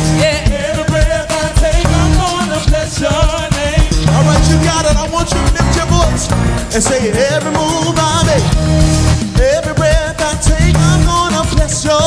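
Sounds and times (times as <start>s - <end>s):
band with steady beat: 0.0s - 12.0s
group of singers: 0.0s - 12.0s.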